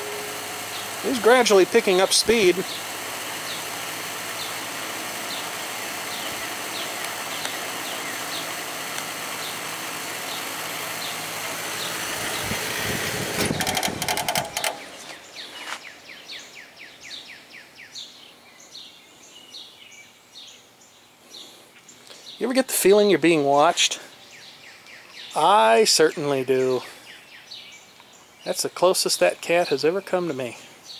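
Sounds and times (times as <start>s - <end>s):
box fan rushing air: 0.0s - 15.8s
birds chirping: 0.0s - 30.9s
clatters: 13.2s - 15.2s.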